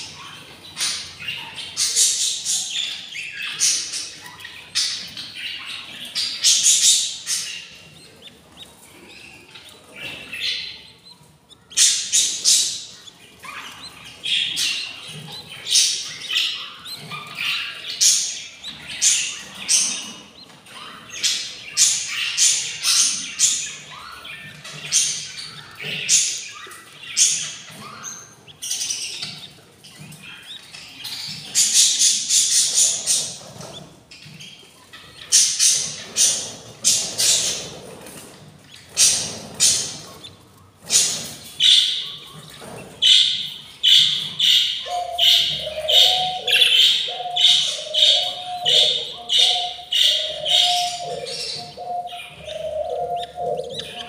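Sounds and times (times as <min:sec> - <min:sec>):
budgerigars chirping and squawking: 0:00.0 - 0:54.0.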